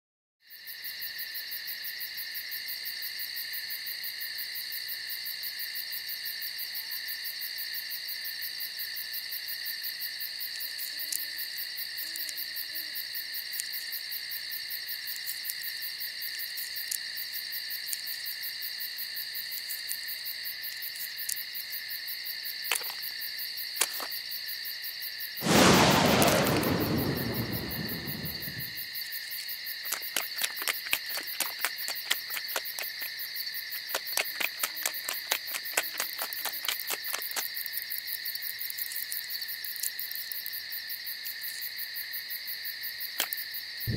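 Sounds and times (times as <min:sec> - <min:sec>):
crickets trilling: 0:00.5 - 0:43.9
loud rushing hiss: 0:25.4 - 0:28.7
small clicks: 0:33.9 - 0:37.5.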